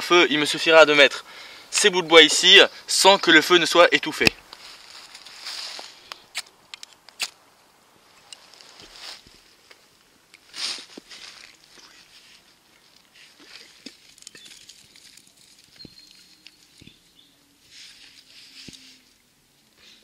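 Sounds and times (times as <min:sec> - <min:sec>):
twigs clicking and snapping: 0:04.2 - 0:07.4, 0:12.7 - 0:17.1.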